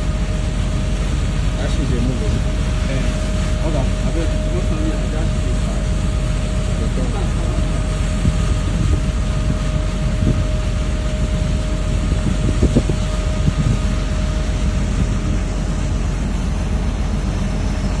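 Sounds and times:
deck machinery rumbling: 0.0 - 18.0
wind on microphone: 6.6 - 18.0.

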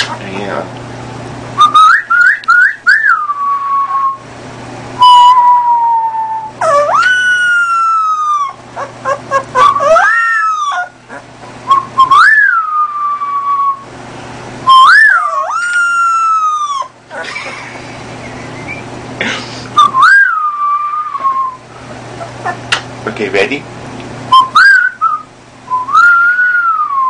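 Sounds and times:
person whistling: 5.0 - 6.5, 19.8 - 21.6, 24.3 - 27.0
puppy howling: 5.0 - 13.8, 14.6 - 17.5, 19.8 - 21.6, 22.2 - 22.7, 24.3 - 25.2, 25.9 - 27.0.

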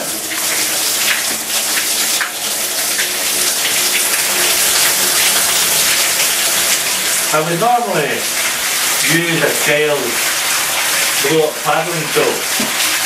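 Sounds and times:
water gushing into a bathtub: 0.0 - 13.0.

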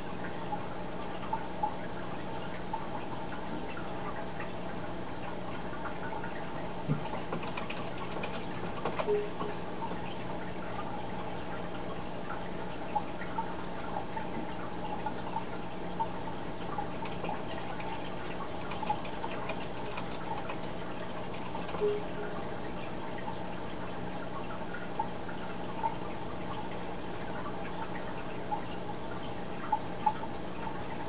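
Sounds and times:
aquarium filter humming: 0.0 - 31.0
faint ticks and plinks: 0.0 - 31.0
trickling water: 0.0 - 31.0
short low tone: 9.1 - 9.6, 21.8 - 22.5.

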